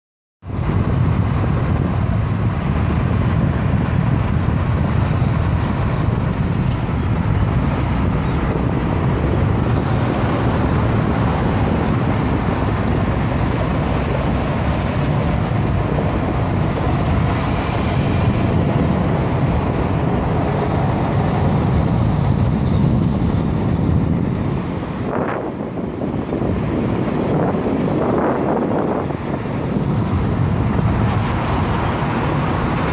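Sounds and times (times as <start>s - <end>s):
highway traffic roar: 0.4s - 32.9s.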